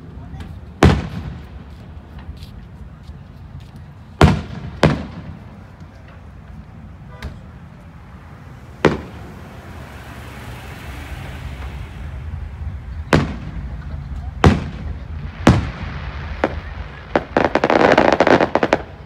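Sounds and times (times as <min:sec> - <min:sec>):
firework shells booming: 0:00.8 - 0:01.7, 0:04.2 - 0:05.7, 0:08.8 - 0:09.7, 0:12.9 - 0:19.0.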